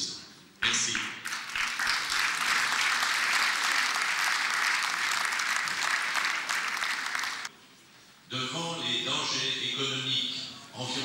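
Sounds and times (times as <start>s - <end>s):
audience applauding: 1.0s - 7.5s.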